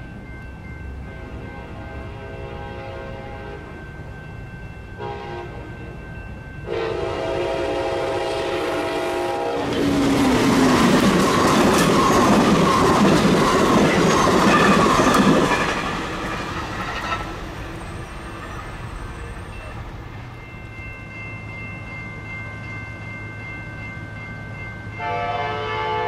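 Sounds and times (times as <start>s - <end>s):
train rushing past: 0.0s - 26.0s
train air horn: 1.1s - 3.8s, 5.0s - 5.8s, 6.7s - 9.8s, 25.0s - 26.0s
wheels clattering: 9.6s - 19.5s.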